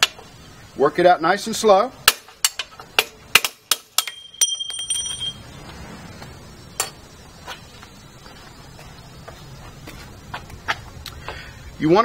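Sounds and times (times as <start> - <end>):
bell-like metal ring: 4.0 - 5.4.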